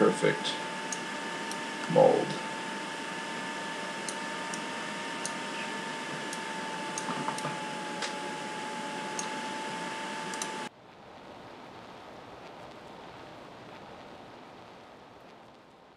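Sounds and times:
thin high whine: 0.0 - 10.7
steady hiss: 0.0 - 15.9
computer mouse clicks: 10.3 - 10.6.

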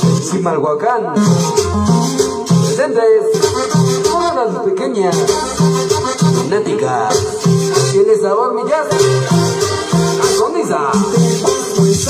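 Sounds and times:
latin dance music: 0.0 - 12.0
person calling out over music: 2.4 - 8.2.

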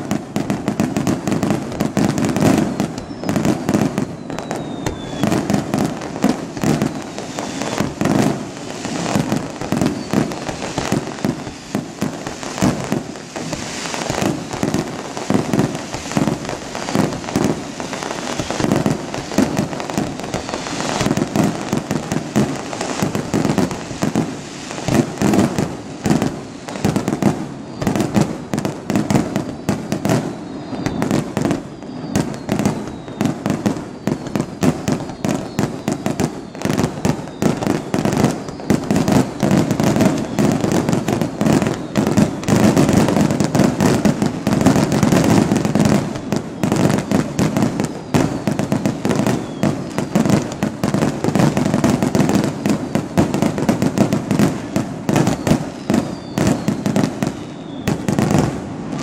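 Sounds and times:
firework shells bursting: 0.5 - 28.2.

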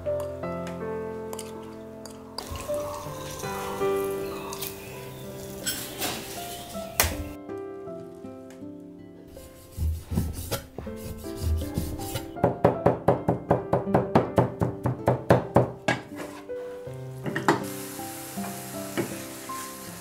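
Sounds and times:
meat sizzling in a pan: 2.4 - 7.4, 16.9 - 20.0.

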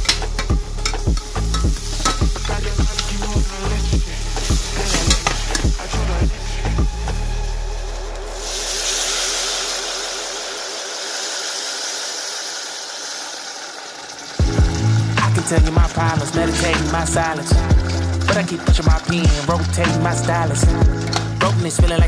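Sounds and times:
metal spoon scraping saucepan: 0.0 - 6.8
loud sizzling steam hiss: 0.0 - 22.0.

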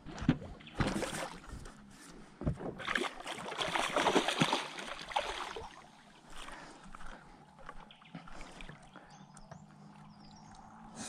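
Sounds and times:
fish splashing and thrashing: 0.1 - 1.8, 2.6 - 8.9.

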